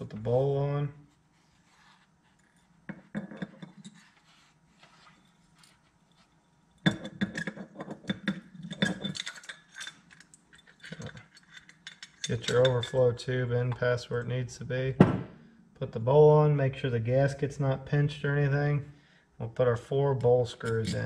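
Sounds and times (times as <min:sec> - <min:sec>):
small metal parts clicking: 0:08.2 - 0:13.0.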